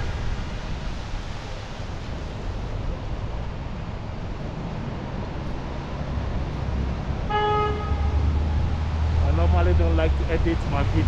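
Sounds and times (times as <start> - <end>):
storm wind and rain: 0.0 - 11.0
traffic on wet street: 0.0 - 11.0
wind buffeting microphone: 0.0 - 11.0
car horn toot: 7.3 - 8.2.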